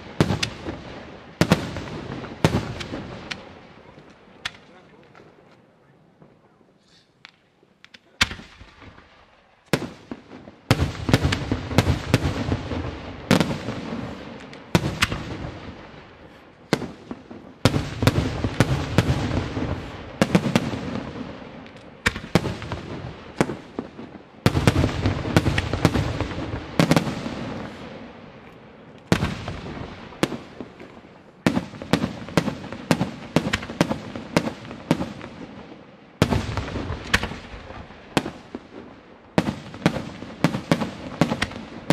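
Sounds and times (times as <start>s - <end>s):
fireworks bursting with bangs: 0.0s - 5.5s, 6.1s - 41.9s.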